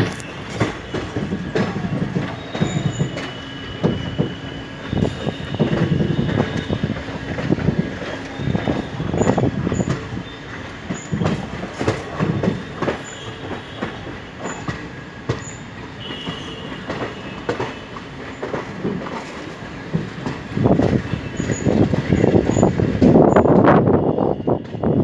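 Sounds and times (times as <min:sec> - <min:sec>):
train wheels clattering over rail joints: 0:00.0 - 0:23.9
wheel squeal: 0:02.3 - 0:06.9.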